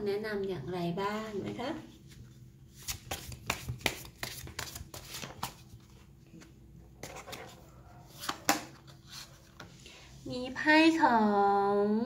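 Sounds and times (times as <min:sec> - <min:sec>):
cards being shuffled by hand: 0:02.7 - 0:07.5.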